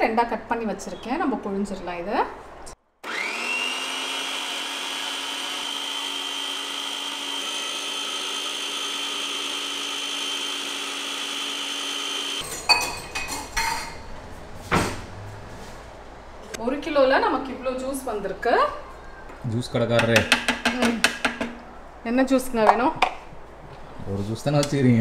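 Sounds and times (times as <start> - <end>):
citrus juicer motor running: 3.0 - 12.4
knocks: 20.0 - 21.6.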